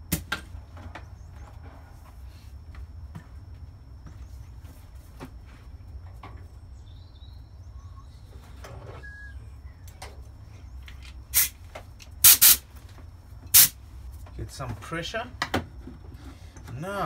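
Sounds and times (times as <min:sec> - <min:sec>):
compressed air blasts: 0:11.3 - 0:11.6, 0:12.2 - 0:12.6, 0:13.5 - 0:13.8.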